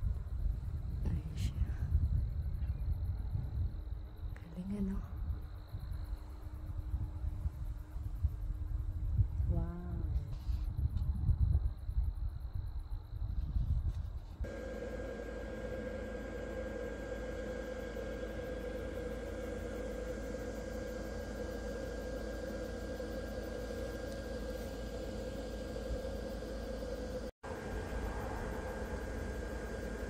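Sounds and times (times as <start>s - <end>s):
steady mechanical hum: 0.0s - 30.0s
high steady whine: 13.2s - 30.0s.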